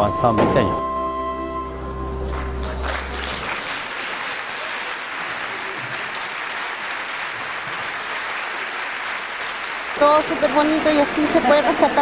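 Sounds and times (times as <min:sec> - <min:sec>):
folk ensemble final chord: 0:00.0 - 0:03.8
audience applause: 0:02.2 - 0:12.0.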